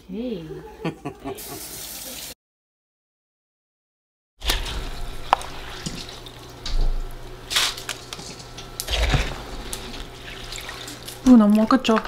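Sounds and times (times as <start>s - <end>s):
water sloshing: 4.4s - 12.0s
water dripping and trickling: 9.6s - 12.0s.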